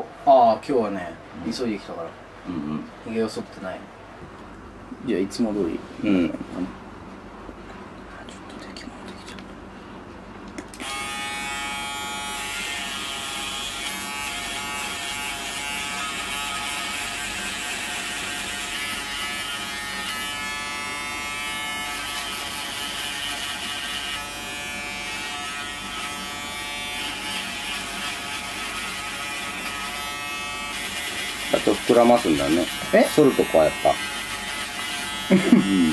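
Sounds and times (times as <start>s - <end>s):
electric shaver buzzing: 10.8s - 35.9s.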